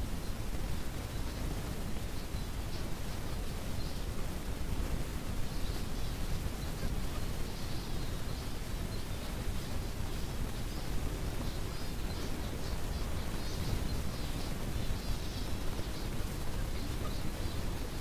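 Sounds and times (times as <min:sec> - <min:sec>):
finches chirping: 0:05.5 - 0:18.0.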